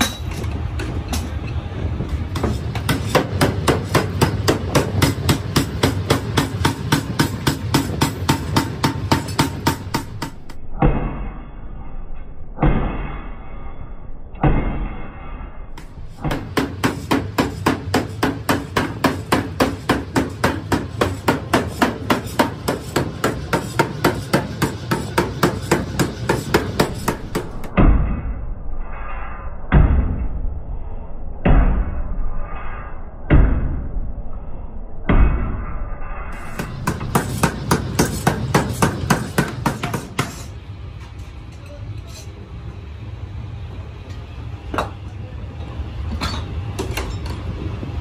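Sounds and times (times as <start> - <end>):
power hammer striking metal: 0.0 - 1.4, 2.2 - 11.9, 12.6 - 13.4, 14.3 - 28.4, 35.0 - 40.6.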